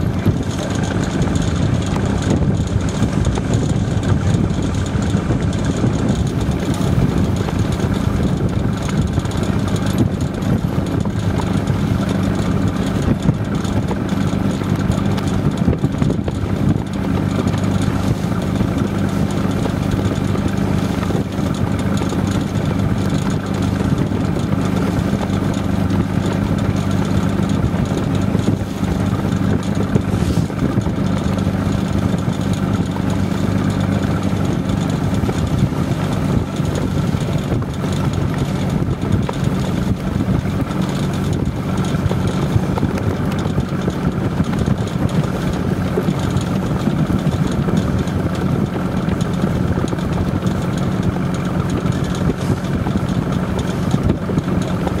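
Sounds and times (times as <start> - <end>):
boat engine idling: 0.0 - 55.0.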